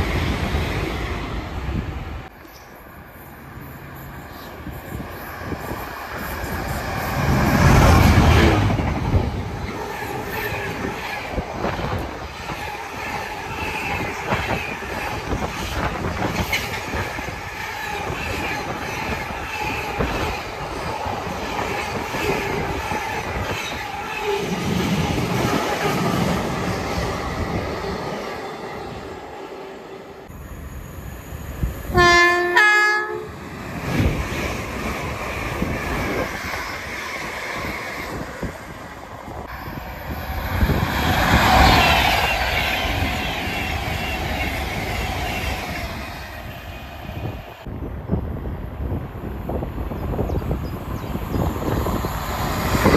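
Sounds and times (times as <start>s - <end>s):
freight locomotive passing: 0.0s - 52.9s
two-tone train horn: 31.9s - 33.4s.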